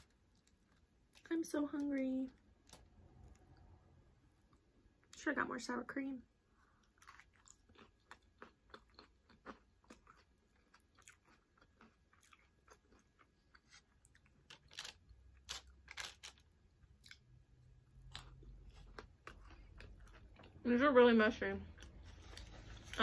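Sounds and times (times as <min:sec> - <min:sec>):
chewing crunchy chips: 0:00.0 - 0:03.7, 0:06.7 - 0:20.6.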